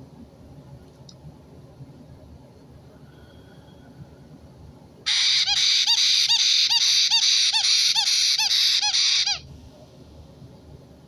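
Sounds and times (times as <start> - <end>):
parrot chicks begging calls: 5.1 - 9.4.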